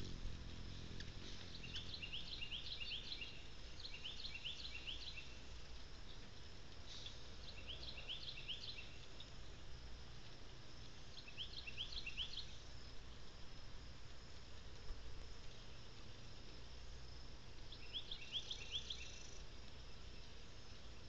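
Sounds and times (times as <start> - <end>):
low outdoor rumble: 0.0 - 21.0.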